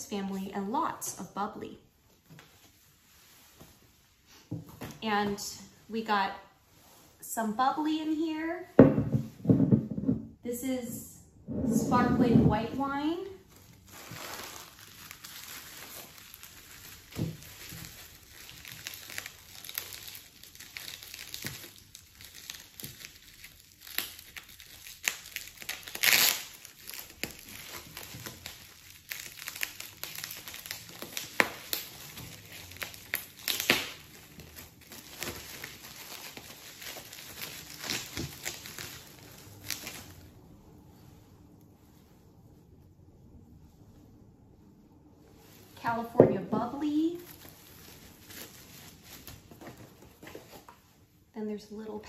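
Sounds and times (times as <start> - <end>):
bubble wrap crinkling: 11.9 - 42.2, 45.3 - 51.3.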